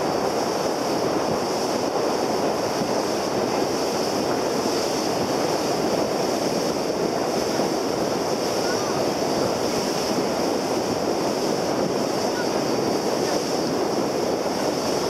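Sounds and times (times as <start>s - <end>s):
sea water rushing along hull: 0.0s - 15.0s
wind on microphone: 0.0s - 15.0s.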